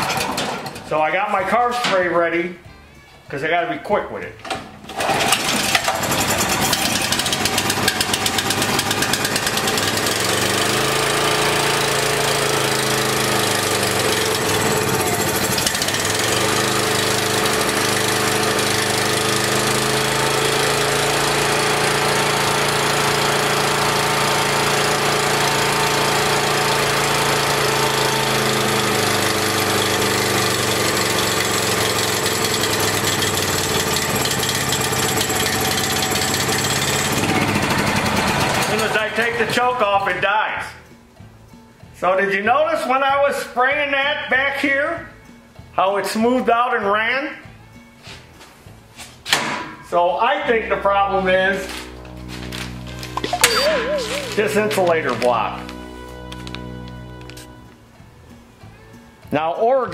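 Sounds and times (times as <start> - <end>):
generator engine running rough: 0.0 - 1.0, 4.9 - 40.2
spray can spraying: 51.7 - 55.8.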